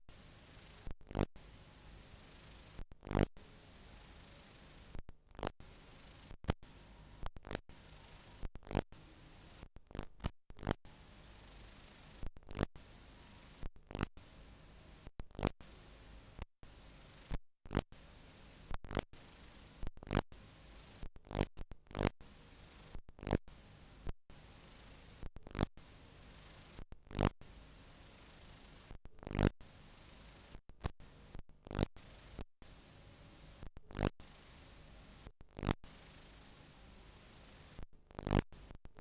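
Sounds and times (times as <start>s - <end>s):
videotape static hiss: 0.1s - 38.8s
sharp static crackles: 0.4s - 1.3s, 2.0s - 3.3s, 4.1s - 6.7s, 7.3s - 8.9s, 9.5s - 10.8s, 11.8s - 12.7s, 13.4s - 14.1s, 15.3s - 15.6s, 17.1s - 17.9s, 18.9s - 19.1s, 20.8s - 23.4s.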